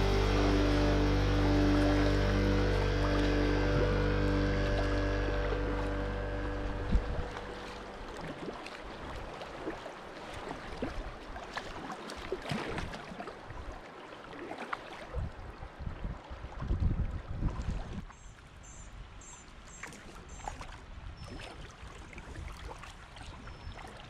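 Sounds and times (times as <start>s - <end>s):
background music: 0.0s - 8.0s
paddle splashing in water: 0.0s - 18.3s, 19.6s - 24.0s.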